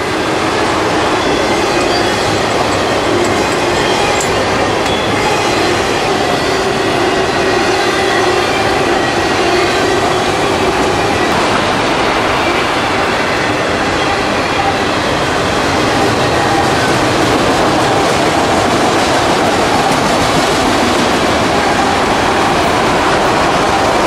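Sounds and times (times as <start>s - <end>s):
freight train wheels on rail: 0.0s - 24.0s.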